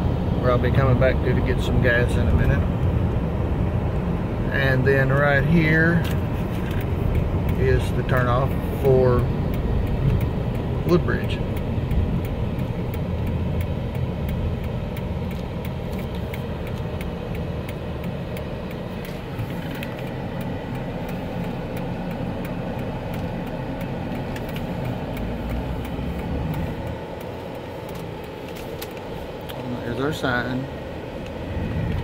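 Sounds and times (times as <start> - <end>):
car engine and road noise: 0.0 - 32.0
turn signal ticking: 0.0 - 32.0.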